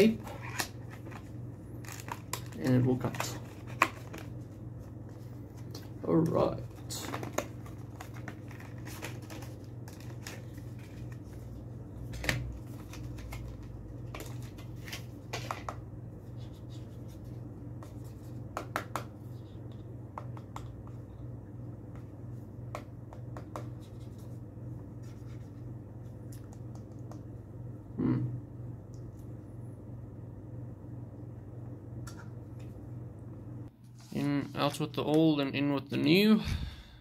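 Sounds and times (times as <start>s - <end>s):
packaging clicks and scratches: 0.2s - 4.4s, 6.6s - 11.2s.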